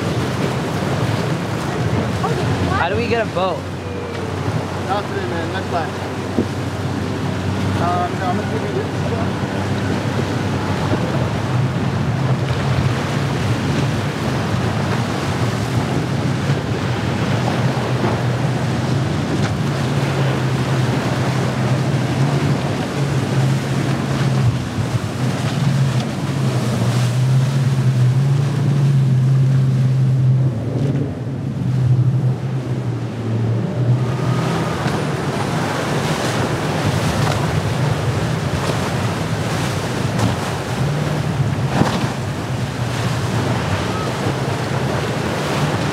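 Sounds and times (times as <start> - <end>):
motorboat engines droning: 0.0 - 45.9
waves breaking: 0.0 - 45.9
wind buffeting microphone: 0.0 - 45.9.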